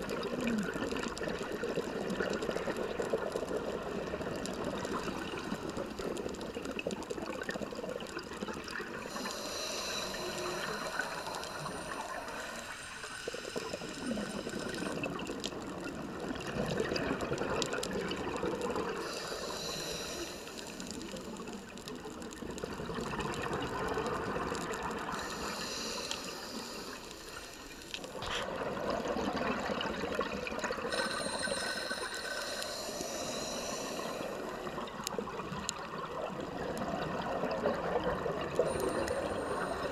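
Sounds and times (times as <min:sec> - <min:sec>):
exhaled bubbles gurgling: 0:00.0 - 0:39.9
regulator hissing inhale: 0:09.0 - 0:15.2, 0:18.9 - 0:21.9, 0:25.0 - 0:28.4, 0:30.8 - 0:35.2, 0:38.6 - 0:39.9.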